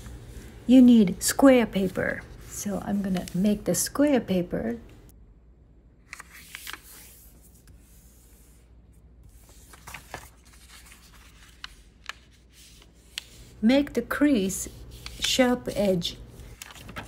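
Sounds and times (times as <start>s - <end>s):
paper rustling on wooden table: 6.1s - 8.6s, 9.2s - 13.6s, 14.4s - 17.0s
crisp paper ticks: 9.8s - 13.3s, 14.9s - 15.5s, 16.5s - 17.0s.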